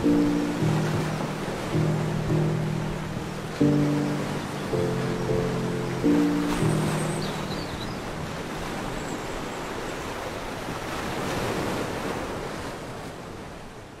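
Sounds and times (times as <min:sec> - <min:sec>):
music: 0:00.0 - 0:08.0
sea waves washing: 0:00.0 - 0:13.4.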